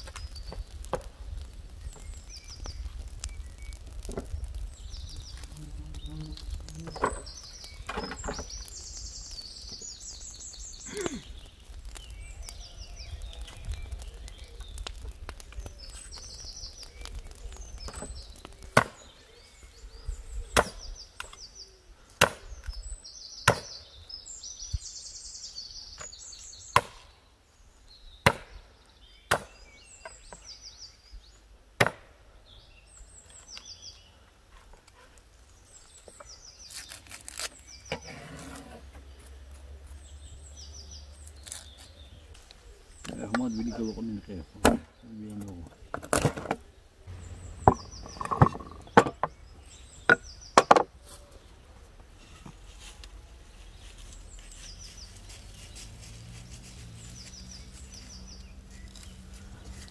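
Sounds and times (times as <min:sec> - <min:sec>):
chopping wood: 0:17.8 - 0:19.1, 0:20.5 - 0:21.4, 0:22.2 - 0:22.8, 0:23.4 - 0:23.8, 0:26.7 - 0:27.1, 0:28.2 - 0:28.7, 0:29.3 - 0:30.4, 0:31.8 - 0:32.2, 0:44.6 - 0:44.9, 0:45.9 - 0:49.4, 0:50.0 - 0:50.9.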